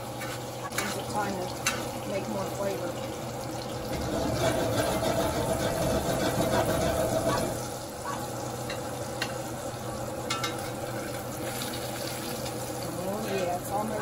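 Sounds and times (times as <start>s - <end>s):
steaks sizzling in a skillet: 0.0s - 14.0s
spoon clinking against pan: 10.3s - 10.7s.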